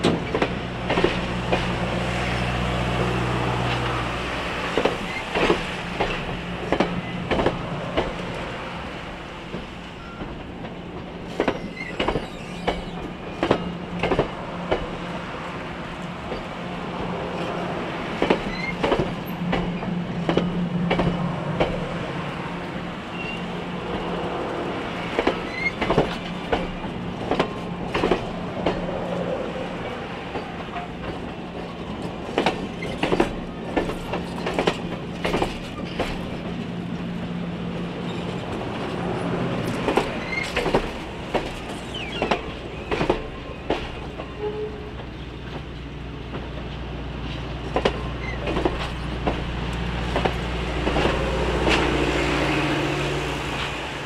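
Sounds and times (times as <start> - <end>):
train wheels clicking over rail joints: 0.0 - 2.4, 3.0 - 8.4, 9.2 - 15.1, 16.0 - 21.9, 23.2 - 52.0.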